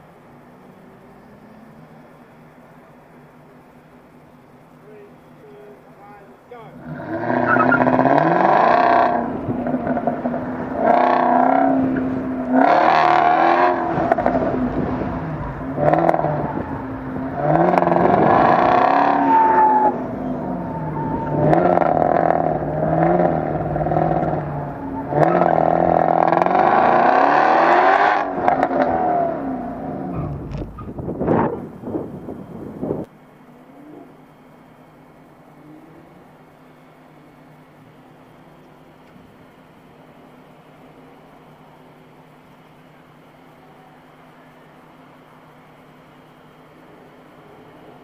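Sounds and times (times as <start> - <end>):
car engine revving hard: 6.7 - 30.6.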